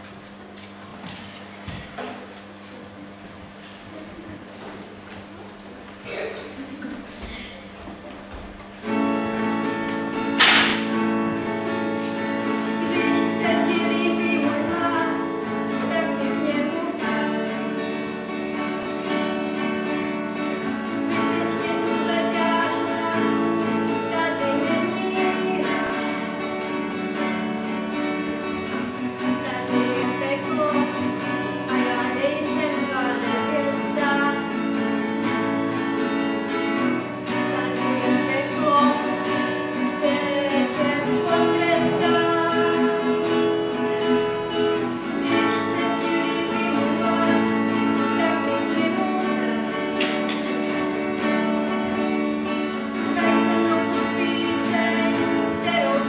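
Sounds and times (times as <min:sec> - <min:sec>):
acoustic guitar music: 0:03.0 - 0:56.0
person singing: 0:11.4 - 0:18.1, 0:20.4 - 0:26.8, 0:28.6 - 0:35.5, 0:37.3 - 0:50.4, 0:51.7 - 0:56.0.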